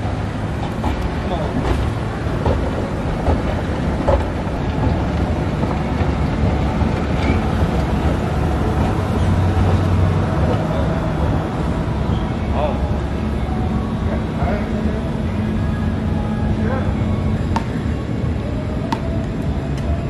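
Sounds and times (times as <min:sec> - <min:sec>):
escalator rumble and hum: 0:00.0 - 0:20.0
shop background noise: 0:00.0 - 0:20.0.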